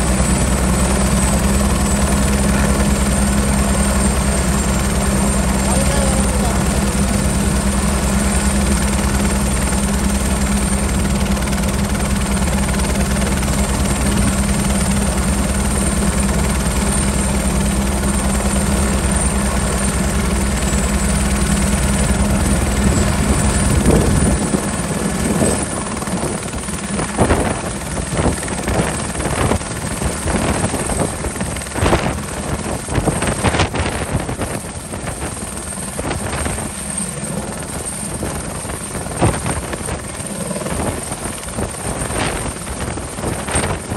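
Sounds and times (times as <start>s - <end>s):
helicopter rotor and turbine drone: 0.0s - 43.9s.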